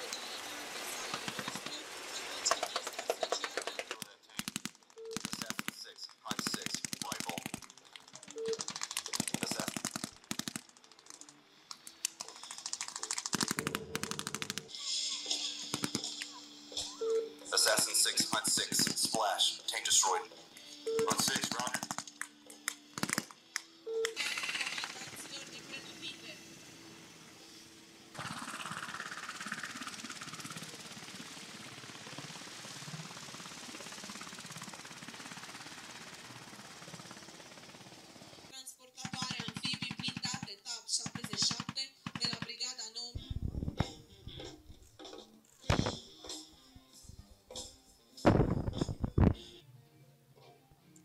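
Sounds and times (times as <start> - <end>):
helicopter turbines humming: 0.4 - 45.0
helicopter rotor chopping: 0.8 - 20.2, 20.9 - 22.3, 22.9 - 23.4, 24.2 - 44.6
machine gun firing bursts: 2.6 - 11.2, 12.3 - 14.7, 21.0 - 22.1, 23.0 - 23.3, 28.2 - 42.7.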